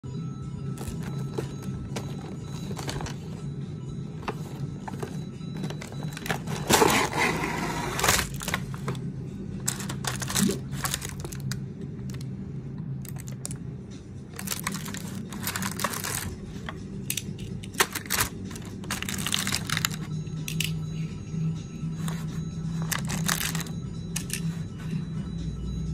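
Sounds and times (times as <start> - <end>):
cardboard and plastic rustling: 0.8 - 3.5, 4.2 - 11.6, 14.4 - 16.8, 17.7 - 20.2, 22.0 - 23.7
metal toy cars clinking: 9.6 - 11.4, 22.9 - 24.5.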